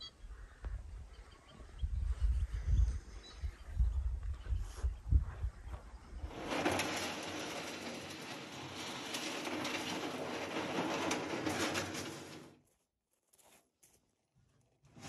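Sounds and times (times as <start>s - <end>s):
metal boat hull scraping over stones: 6.1s - 12.6s
pebbles crunching and rattling: 6.2s - 12.6s.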